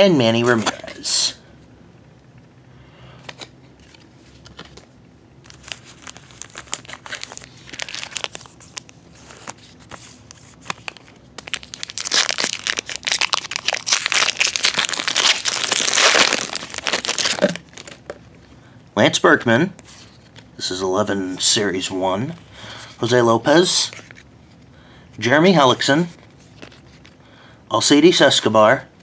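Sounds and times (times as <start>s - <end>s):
foil wrapper crinkling: 5.4s - 18.2s
foil wrapper tearing: 5.5s - 9.6s, 10.5s - 18.1s.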